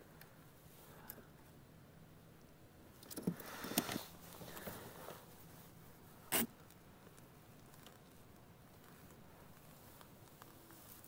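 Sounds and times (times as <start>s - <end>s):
gloves and plastic rustling: 3.2s - 11.0s.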